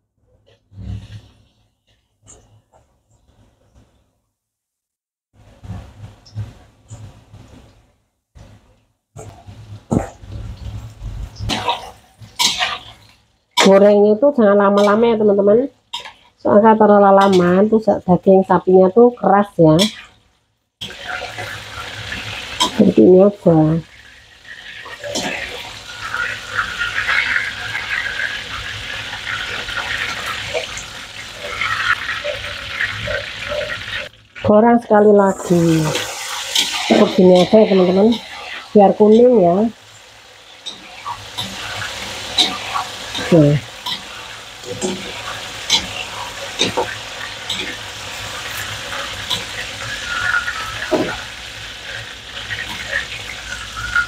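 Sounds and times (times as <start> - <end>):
hot oil sizzling and crackling: 5.3 - 54.0
metal utensils clinking on wok: 11.5 - 12.8, 14.8 - 15.1.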